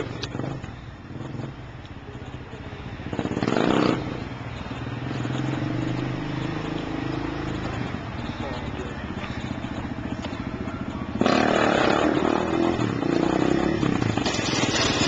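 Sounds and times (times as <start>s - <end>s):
quad bike engine revving: 3.1s - 4.3s, 11.1s - 15.0s.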